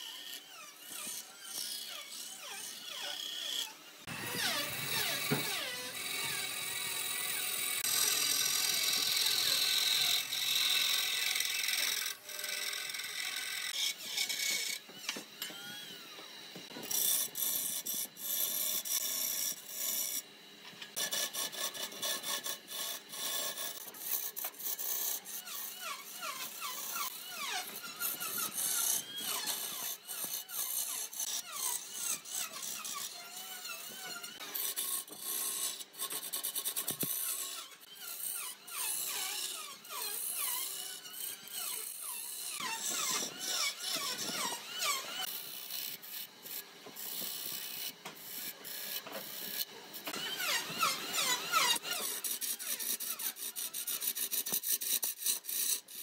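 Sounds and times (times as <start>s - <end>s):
wood lathe tool scraping wood: 0.0s - 20.2s, 20.9s - 56.0s.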